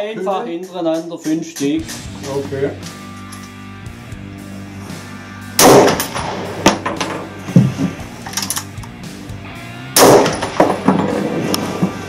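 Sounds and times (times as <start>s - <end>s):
rifle shots: 5.6s - 6.9s, 10.0s - 11.8s
rifle action metallic clicks: 8.2s - 9.0s.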